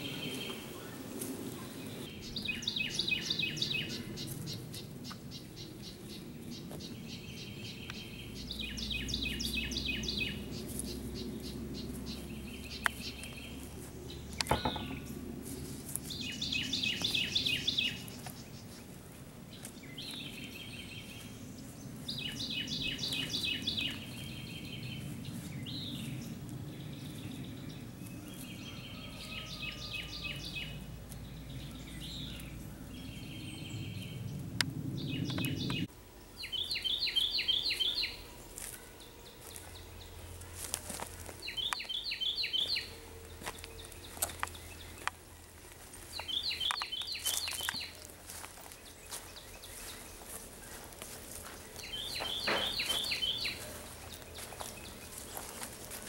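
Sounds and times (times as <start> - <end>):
low steady rumble: 0.0 - 37.3
songbirds singing: 0.0 - 56.0.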